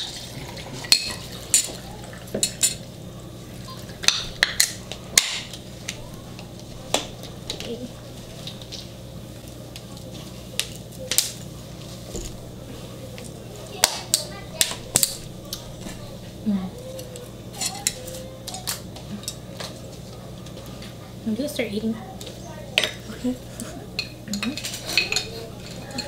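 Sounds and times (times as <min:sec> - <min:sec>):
tableware clinking: 0:00.0 - 0:02.9, 0:17.0 - 0:20.0, 0:24.0 - 0:26.0.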